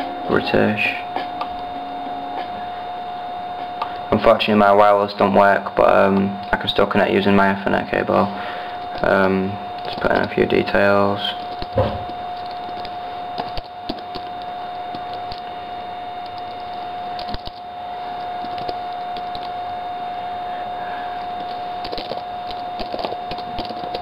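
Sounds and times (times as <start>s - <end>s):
constant whine: 0.0s - 24.0s
laptop keyboard typing: 8.8s - 15.5s, 16.2s - 19.6s, 21.3s - 24.0s.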